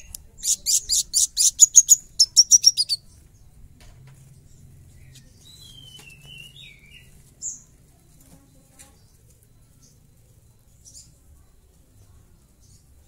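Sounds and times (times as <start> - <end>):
high bird chirp: 0.0 - 3.6, 4.2 - 7.8
sunbird twittering: 0.0 - 3.6, 4.4 - 7.7.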